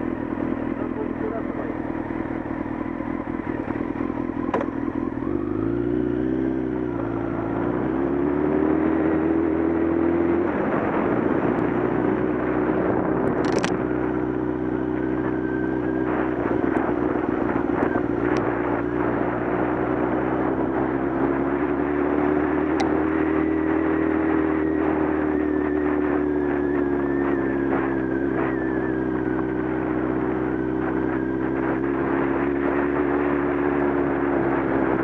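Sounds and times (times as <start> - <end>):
motorcycle engine on gravel: 13.1 - 13.8.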